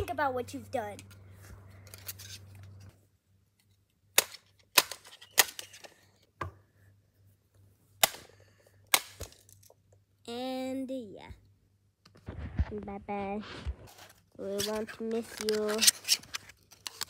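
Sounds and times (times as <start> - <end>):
bat whacking plastic housing: 4.2 - 5.8.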